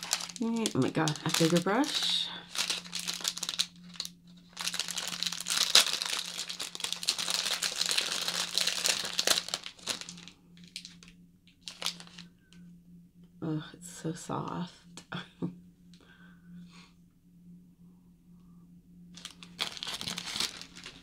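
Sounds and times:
crinkly packaging rustling: 0.0 - 12.3, 19.2 - 21.0.

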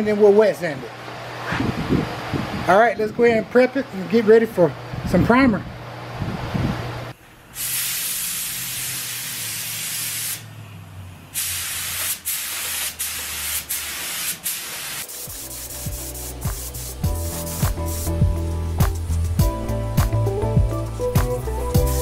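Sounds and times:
spray gun hissing: 7.5 - 10.5, 11.3 - 19.4
background music with a beat: 15.2 - 22.0.

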